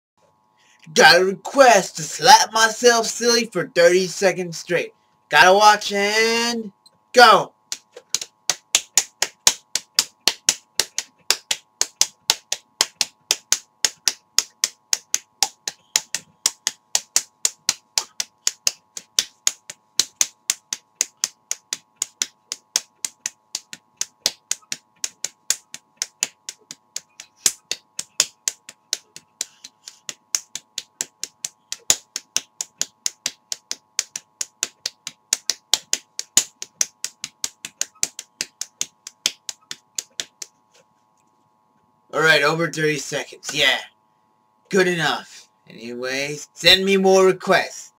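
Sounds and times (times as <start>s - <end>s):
hands slapping face: 7.7s - 40.6s.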